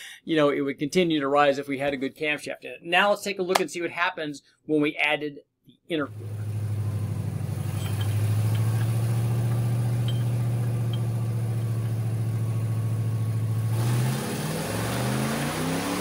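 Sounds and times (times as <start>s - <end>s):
car engine revving: 6.1s - 16.0s.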